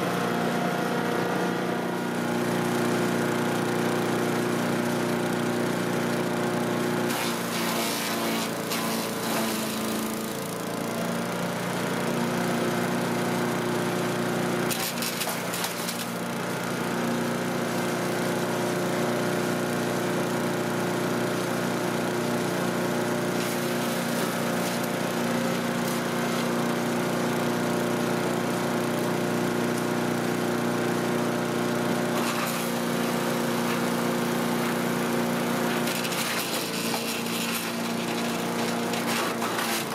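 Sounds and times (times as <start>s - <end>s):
chipper shredder engine running: 0.0s - 39.9s
crackling of yard waste chipping: 6.1s - 12.5s, 14.2s - 20.4s, 21.2s - 39.9s.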